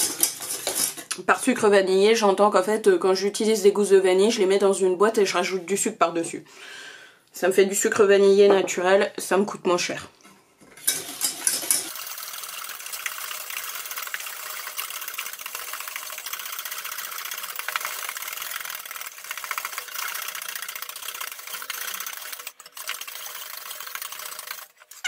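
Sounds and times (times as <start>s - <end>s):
whisk clattering in metal pan: 0.0s - 1.1s, 10.8s - 25.0s.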